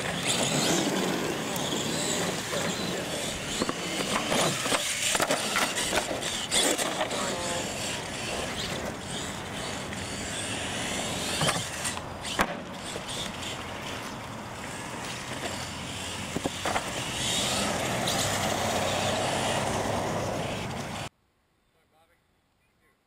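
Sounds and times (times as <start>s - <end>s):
truck striking ramps: 0.0s - 14.0s, 14.7s - 21.1s
toy truck motor whining: 0.0s - 21.1s
tyre noise on pavement: 0.0s - 21.1s.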